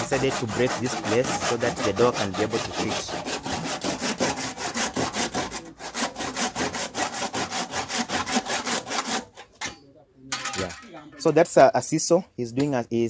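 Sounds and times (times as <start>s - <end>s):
hand saw cutting wood: 0.0s - 9.6s.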